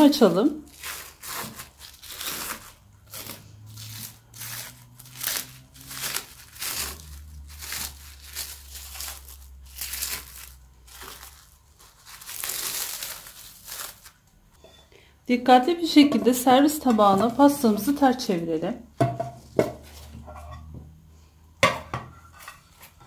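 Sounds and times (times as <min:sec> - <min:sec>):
cling film crinkling: 0:00.7 - 0:14.4.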